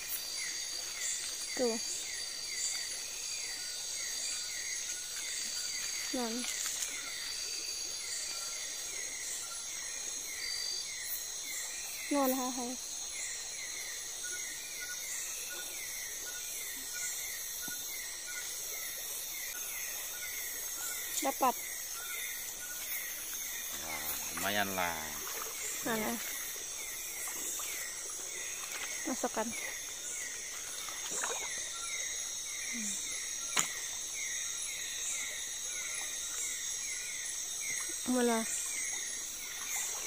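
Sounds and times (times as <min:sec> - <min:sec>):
high-pitched insect buzz: 0:04.2 - 0:08.2, 0:16.3 - 0:35.4
short falling insect chirp: 0:04.8 - 0:07.4.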